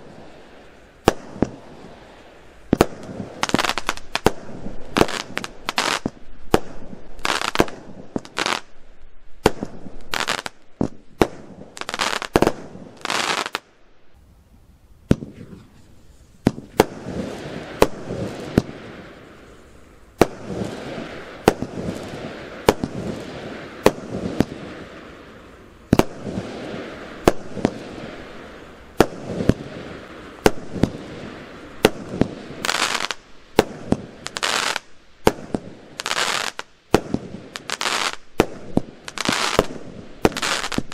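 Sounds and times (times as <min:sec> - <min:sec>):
dense firework crackling: 0:00.0 - 0:13.8, 0:15.0 - 0:40.9
hissing firework launches: 0:15.0 - 0:40.9.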